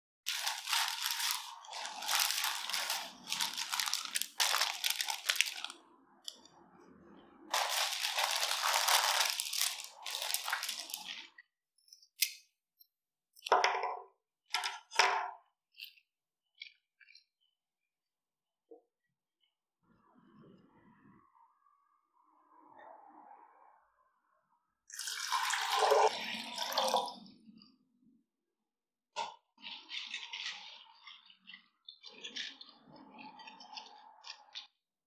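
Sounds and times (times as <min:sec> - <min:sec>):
flower wrapping crinkling: 0:00.3 - 0:05.8, 0:07.5 - 0:11.3.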